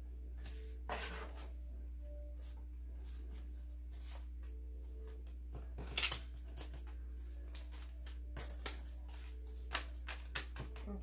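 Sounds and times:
paper bills rustling and flicking: 5.7 - 11.0.

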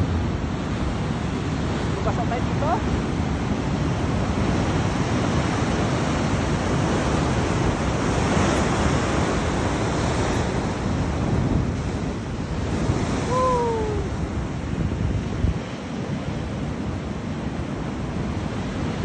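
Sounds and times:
ocean surf breaking: 0.0 - 19.0
wind on microphone: 3.3 - 19.0.

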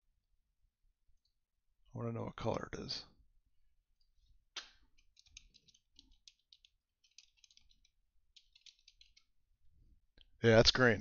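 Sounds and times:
faint keyboard typing: 4.6 - 9.5.

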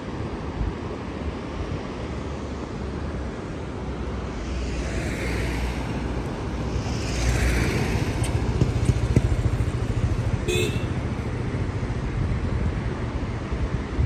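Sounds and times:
road and traffic noise: 0.0 - 14.0
vehicle engine humming: 2.4 - 13.7.

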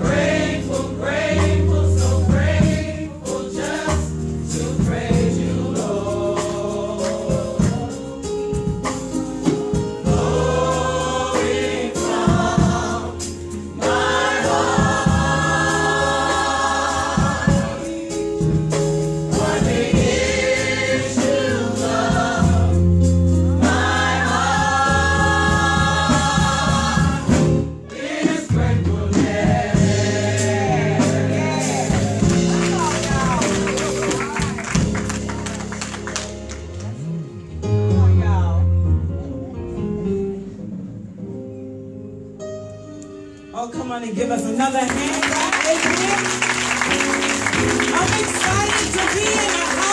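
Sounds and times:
gospel choir singing: 0.0 - 35.8, 45.8 - 49.9
steady drumbeat: 0.0 - 36.2, 45.1 - 49.9
bass line: 28.5 - 42.4.

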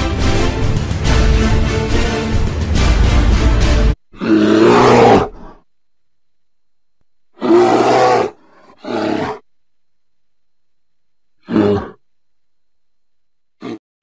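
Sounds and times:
background music: 0.0 - 4.1
bear roaring: 4.1 - 5.6, 7.4 - 9.4, 11.4 - 12.0, 13.6 - 13.8.

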